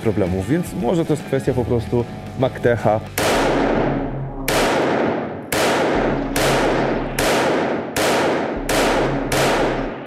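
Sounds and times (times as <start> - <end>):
pistol shots echoing: 3.2 - 10.0.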